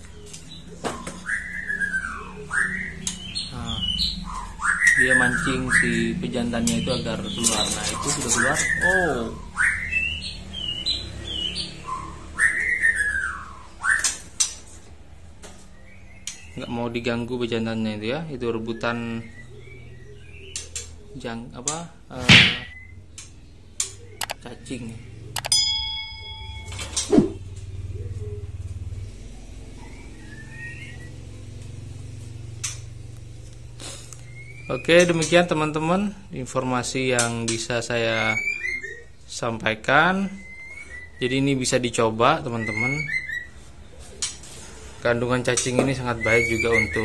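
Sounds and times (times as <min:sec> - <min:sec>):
bird whistling: 0:00.1 - 0:14.6, 0:18.6 - 0:21.2, 0:22.3 - 0:25.6, 0:29.6 - 0:31.4, 0:34.2 - 0:35.9, 0:38.1 - 0:39.2, 0:40.1 - 0:44.3, 0:45.9 - 0:47.0
sharp click: 0:21.7 - 0:24.4, 0:25.4 - 0:25.6.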